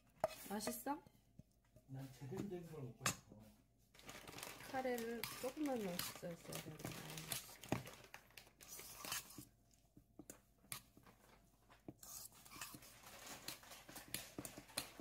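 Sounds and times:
spoon scraping metal bowl: 0:00.0 - 0:01.0, 0:04.8 - 0:07.8, 0:08.6 - 0:09.6, 0:11.9 - 0:15.0.

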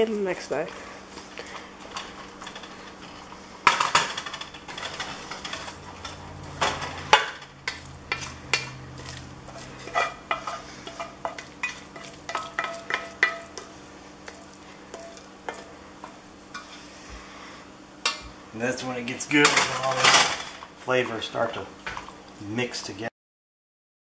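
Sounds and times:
spoon scraping and knocking pot: 0:03.6 - 0:16.8.

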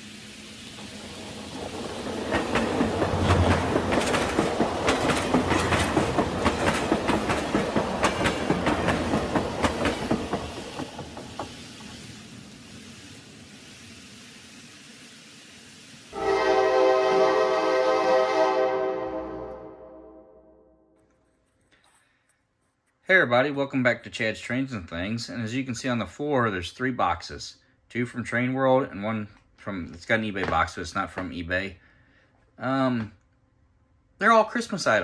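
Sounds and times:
model train rumbling: 0:00.0 - 0:19.6
wheels clicking over rail joints: 0:00.8 - 0:15.8.

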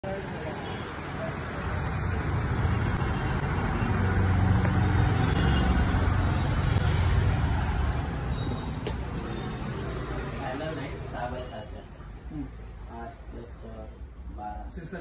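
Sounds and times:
vehicle passing: 0:01.1 - 0:11.2.

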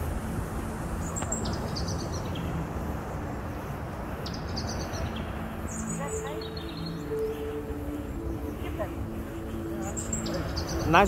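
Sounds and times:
surf on sandy beach: 0:00.0 - 0:11.0
high chirps: 0:04.2 - 0:11.0.

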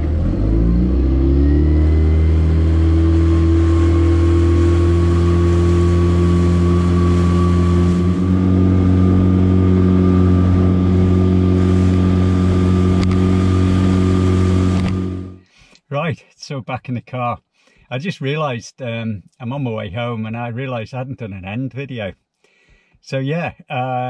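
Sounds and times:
outboard motor revving: 0:00.0 - 0:15.4
water rushing past hull: 0:01.2 - 0:15.4.

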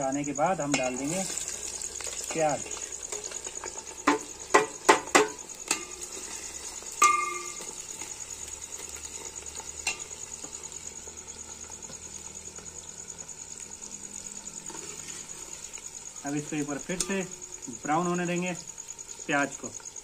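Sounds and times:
onions sizzling in oil: 0:00.0 - 0:20.0
metal plate knocking on pot: 0:04.1 - 0:05.9, 0:07.0 - 0:07.6
ringing metallic clang: 0:07.0 - 0:07.6.

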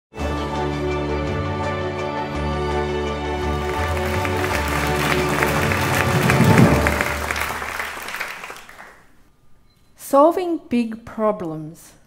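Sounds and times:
theme music with chords and bass: 0:00.2 - 0:07.6.

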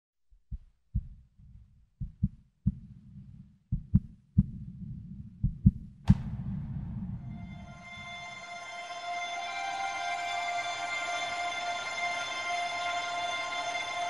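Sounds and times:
heartbeat thumps: 0:00.4 - 0:07.7
low rumble: 0:02.0 - 0:09.6
sharp ringing hit: 0:06.1 - 0:09.6.

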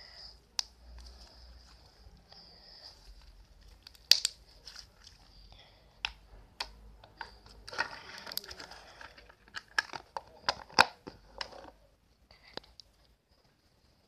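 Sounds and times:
hands squishing crackling slime: 0:03.1 - 0:05.3.

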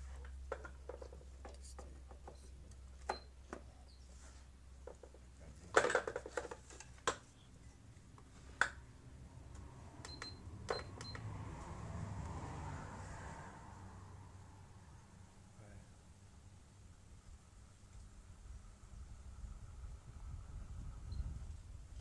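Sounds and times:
fan clicks and knocks: 0:00.2 - 0:03.7, 0:04.8 - 0:07.2.

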